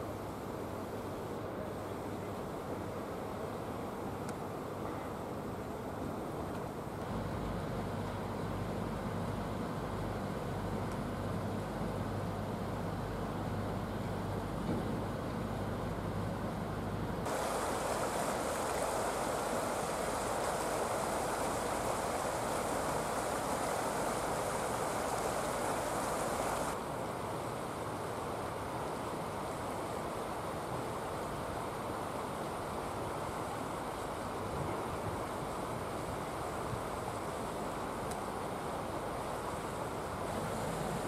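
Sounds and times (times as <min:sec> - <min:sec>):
river flowing over stones: 0:17.2 - 0:34.5
outdoor hiss: 0:17.2 - 0:41.0.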